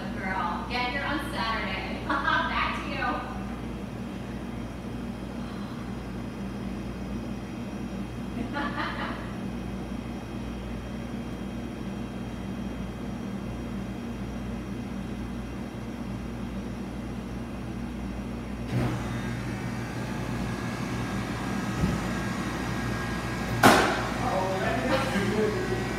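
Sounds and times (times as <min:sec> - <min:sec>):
low mechanical hum: 0:00.0 - 0:25.9
sharp knock: 0:23.6 - 0:24.1.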